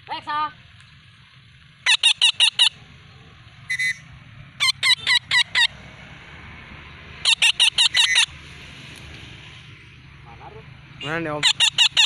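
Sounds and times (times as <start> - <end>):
parakeet screeching: 1.8 - 2.8, 3.7 - 5.8, 7.2 - 8.4, 11.3 - 12.0
parakeet squawk: 1.8 - 2.8, 3.7 - 5.8, 7.2 - 8.4, 11.3 - 12.0.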